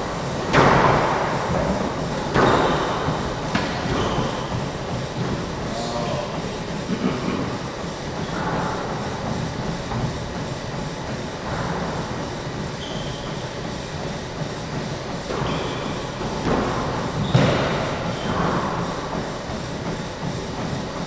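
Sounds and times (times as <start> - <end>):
steady background hum: 0.0 - 21.0
shoes squeaking on hardwood floor: 3.8 - 4.5, 12.8 - 13.4.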